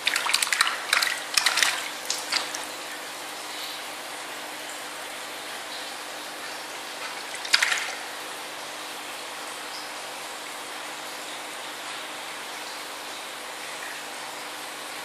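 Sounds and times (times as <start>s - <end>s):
water splashing in a basin: 0.0s - 3.1s, 6.8s - 8.4s.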